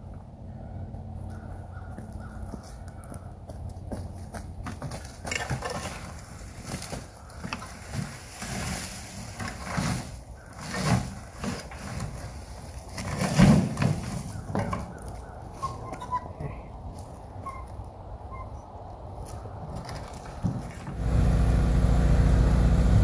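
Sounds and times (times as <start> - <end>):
wheelbarrow clatter: 4.6 - 15.0.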